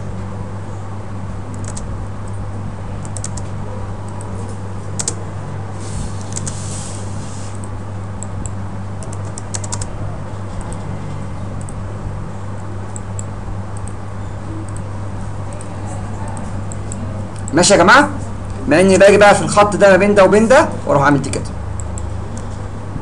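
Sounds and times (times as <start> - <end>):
steady low hum: 0.0 - 23.0
keyboard and mouse clicking: 1.5 - 2.4, 3.0 - 3.4, 5.0 - 5.2, 6.3 - 6.6, 7.6 - 9.9.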